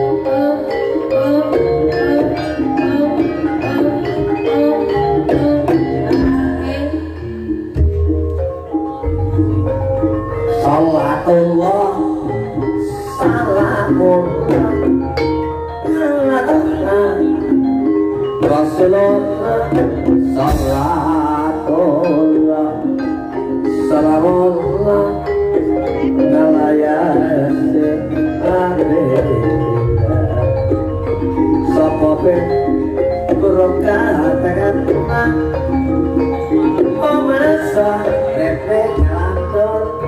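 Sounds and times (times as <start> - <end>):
metallophones playing melody: 0.0 - 40.0.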